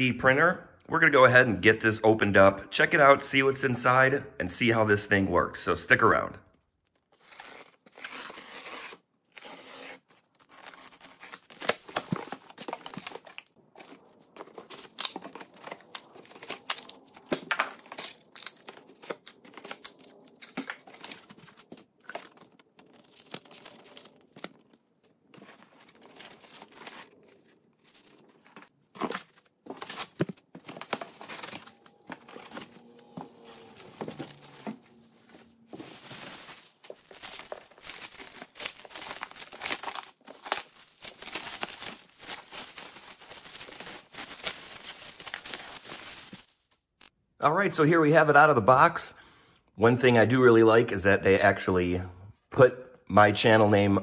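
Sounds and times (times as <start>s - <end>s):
packaging crinkling and rustling: 6.7s - 47.1s.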